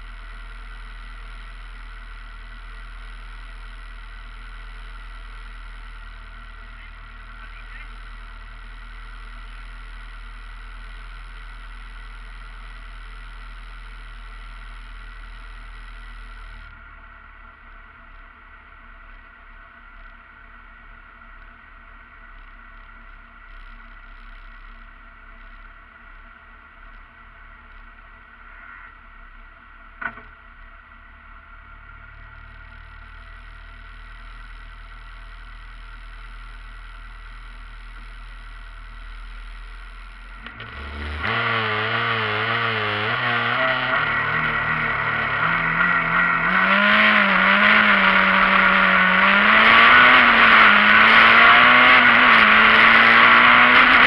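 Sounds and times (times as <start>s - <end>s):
rally car engine: 0.0s - 54.0s.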